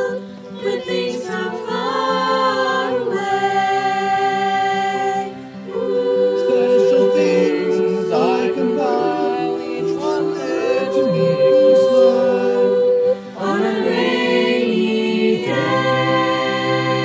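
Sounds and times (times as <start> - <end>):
choir singing a cappella: 0.0 - 17.0.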